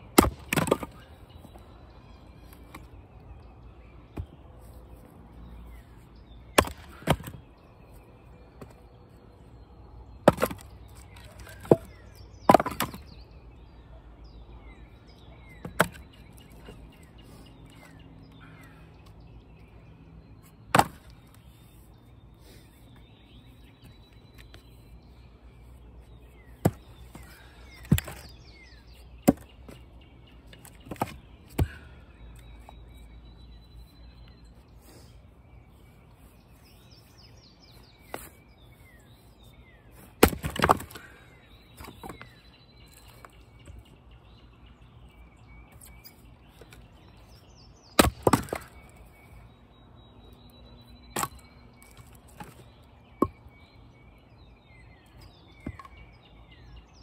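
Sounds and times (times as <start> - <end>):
axe strikes splitting wood: 0.1 - 1.0, 6.5 - 7.4, 10.2 - 13.0, 20.7 - 21.2, 27.8 - 28.3, 29.2 - 29.4, 40.2 - 41.1, 48.0 - 48.9, 51.1 - 51.5.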